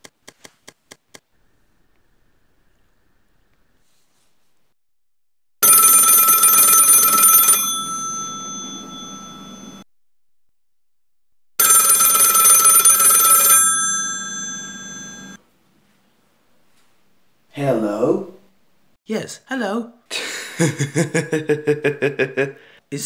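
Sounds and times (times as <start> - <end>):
telephone bell ringing: 5.6 - 9.8, 11.6 - 15.4.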